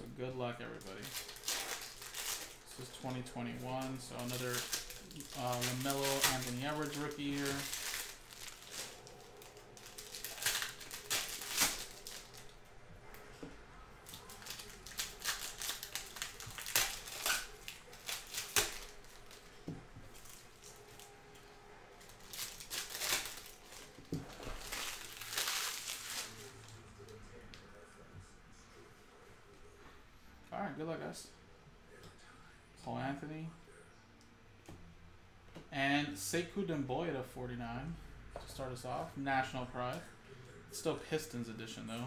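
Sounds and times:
foil wrappers crinkling and tearing: 0.8s - 12.6s, 14.0s - 21.1s, 22.0s - 26.8s.

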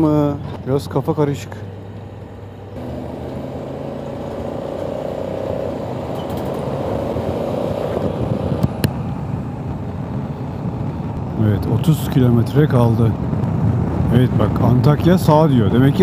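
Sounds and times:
motorcycle engine: 2.4s - 9.9s
wind rush: 2.8s - 16.0s.

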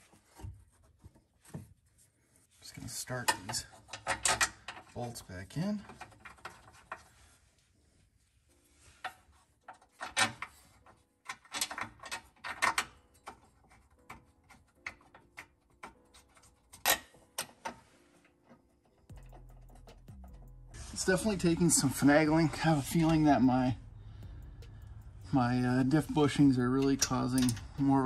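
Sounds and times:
metallic clicks taps and scrapes: 3.3s - 5.0s, 18.5s - 20.8s, 24.0s - 28.0s
low hum: 19.1s - 28.0s.

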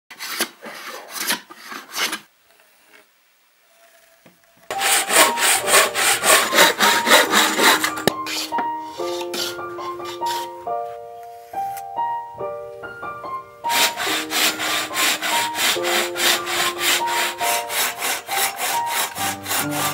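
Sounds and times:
hand plane shaving wood: 0.1s - 2.3s, 4.7s - 10.6s, 13.7s - 19.9s
piano music: 4.7s - 19.9s.

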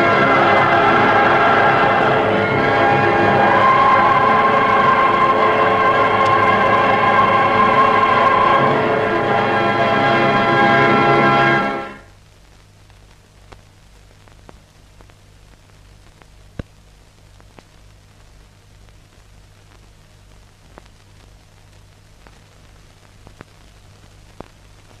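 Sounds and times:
low hum: 0.0s - 13.1s
faint steady hiss: 0.0s - 25.0s.

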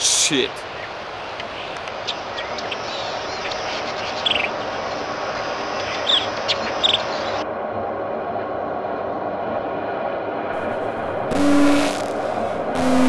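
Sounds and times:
steady rushing noise: 10.4s - 13.0s.

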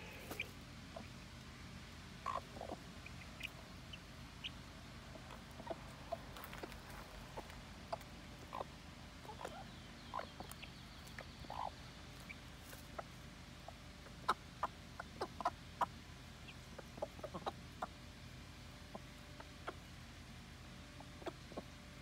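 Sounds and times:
hen clucking softly: 0.0s - 1.5s, 2.2s - 22.0s
pecking clicks in mulch: 5.2s - 13.2s.

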